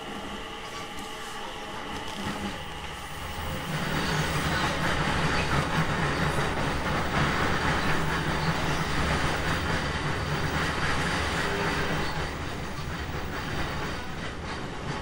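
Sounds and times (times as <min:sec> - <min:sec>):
low hum of train running gear: 0:00.0 - 0:15.0
train wheels rumbling on rail: 0:00.0 - 0:15.0.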